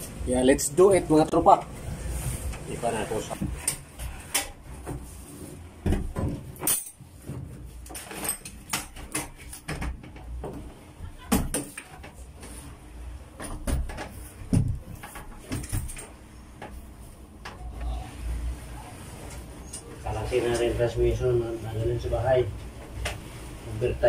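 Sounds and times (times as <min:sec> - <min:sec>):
tools clanking on metal: 0:05.9 - 0:07.0.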